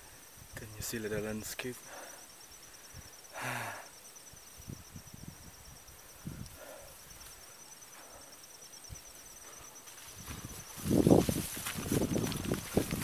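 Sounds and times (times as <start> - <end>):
insects trilling: 0.0 - 13.0
soft footsteps: 9.4 - 13.0.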